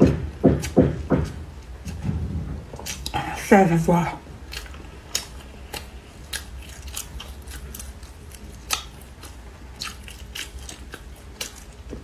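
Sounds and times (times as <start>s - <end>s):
crispy food crunching: 2.7s - 12.0s.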